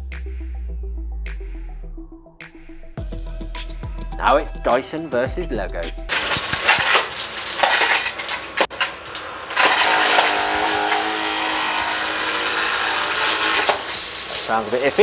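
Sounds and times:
plastic bricks rattling in vacuum: 0:06.1 - 0:11.0
vacuum motor whine: 0:09.2 - 0:14.7.

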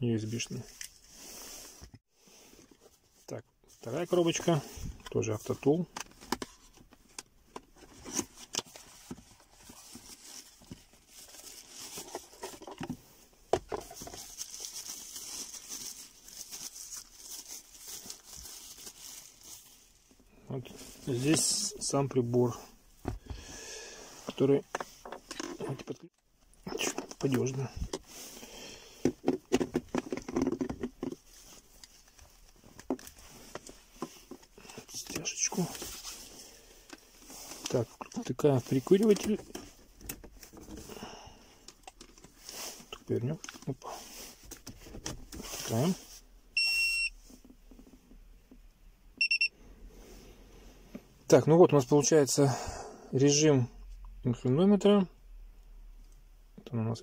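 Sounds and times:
plastic bag crinkling: 0:13.9 - 0:20.0.

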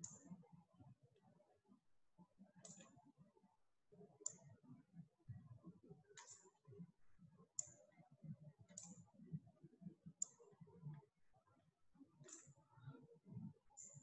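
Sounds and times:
computer mouse clicks: 0:00.0 - 0:00.3, 0:02.6 - 0:03.0, 0:04.2 - 0:04.5, 0:06.1 - 0:06.6, 0:07.6 - 0:07.8, 0:08.7 - 0:09.1, 0:10.2 - 0:11.0, 0:12.2 - 0:12.9.

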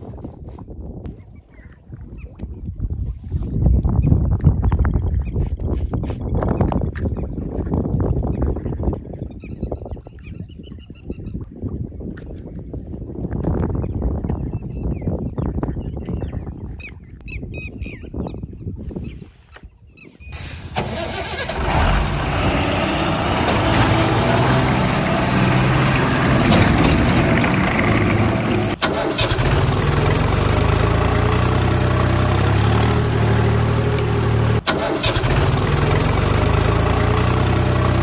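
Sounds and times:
engine starting and running: 0:20.4 - 0:38.0.

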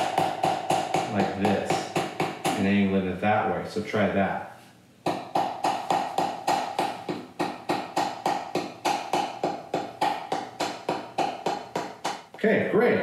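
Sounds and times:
wooden paddle tapping clay pot: 0:00.0 - 0:02.6, 0:05.1 - 0:12.3.

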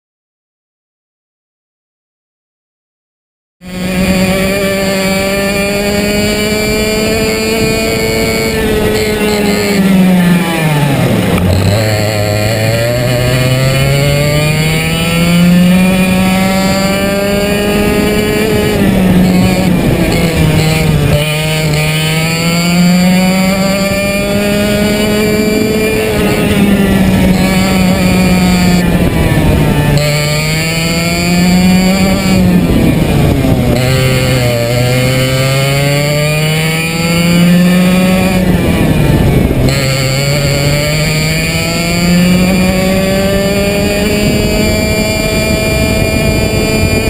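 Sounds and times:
two-stroke kart engine revving: 0:03.6 - 0:47.0.

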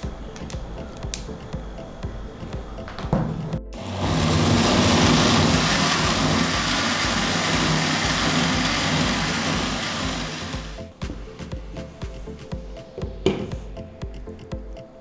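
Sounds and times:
mixer grinder motor running: 0:03.8 - 0:10.9.

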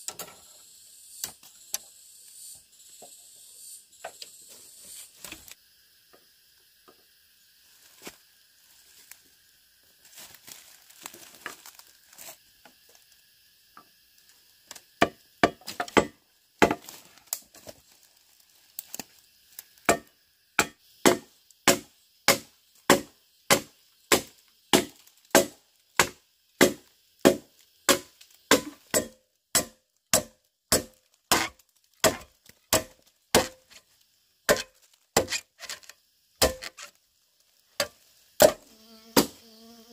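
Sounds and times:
blade chopping wood: 0:19.9 - 0:33.8, 0:34.5 - 0:36.9, 0:37.8 - 0:38.6, 0:39.2 - 0:39.4.

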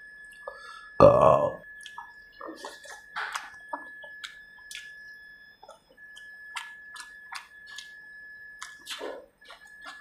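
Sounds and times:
thin high whine: 0:00.0 - 0:10.0
wet chewing smacks: 0:05.6 - 0:08.0, 0:08.6 - 0:10.0.

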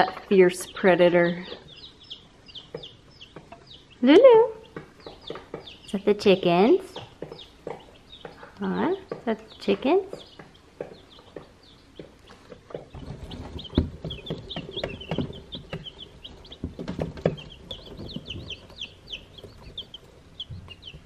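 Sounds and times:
baby chicks peeping: 0:00.0 - 0:21.0.

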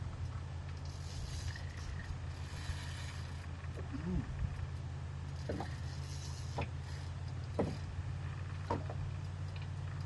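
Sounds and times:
low hum of reel: 0:00.0 - 0:10.0
fishing reel clicking: 0:00.8 - 0:03.5.

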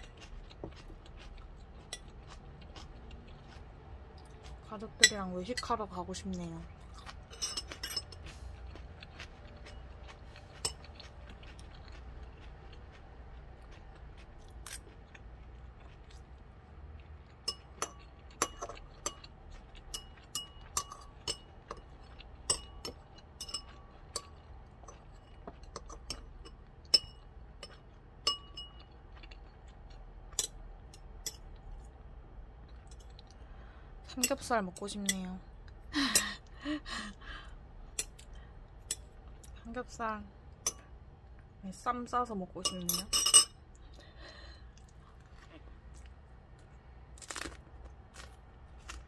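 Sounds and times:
utensils clinking against ceramic bowl: 0:07.2 - 0:08.3, 0:19.9 - 0:28.9, 0:42.6 - 0:43.6.

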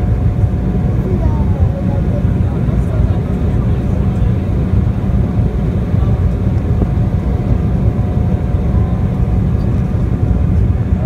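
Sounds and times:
jet cabin engine rumble: 0:00.0 - 0:11.0.

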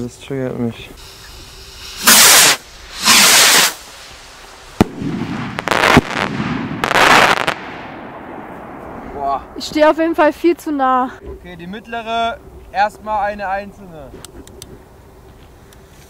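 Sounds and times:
firework rockets hissing: 0:00.9 - 0:08.8
rockets bursting with bangs: 0:01.0 - 0:10.6.

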